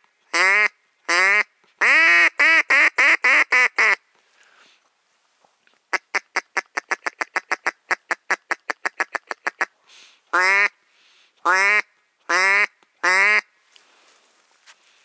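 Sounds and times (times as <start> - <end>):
duck call clucks: 0.3 - 4.0, 5.9 - 9.7, 10.3 - 10.8, 11.4 - 13.5
duck call quacks: 0.3 - 4.0, 5.9 - 9.7, 10.3 - 10.8, 11.4 - 13.5.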